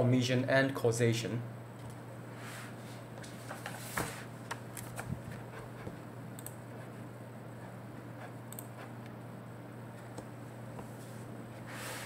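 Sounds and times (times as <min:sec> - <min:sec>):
low electrical hum: 0:00.0 - 0:12.0
computer mouse clicks: 0:06.4 - 0:06.6, 0:08.5 - 0:09.2.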